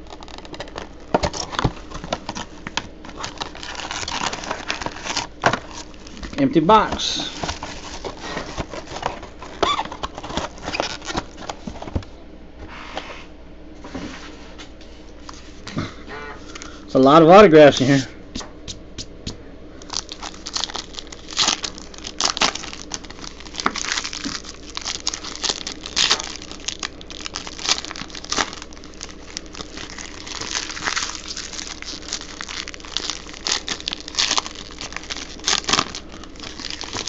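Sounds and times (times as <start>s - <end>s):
foil wrappers crinkling: 0.0s - 12.0s, 19.8s - 37.0s.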